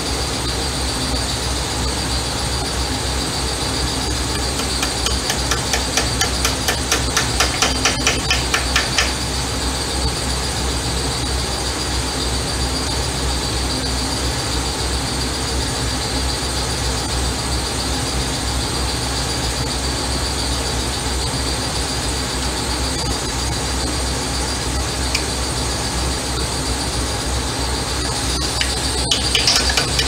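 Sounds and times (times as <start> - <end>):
machine whine over low hum: 0.0 - 30.0
fast sharp clicks: 4.3 - 9.2, 28.4 - 30.0.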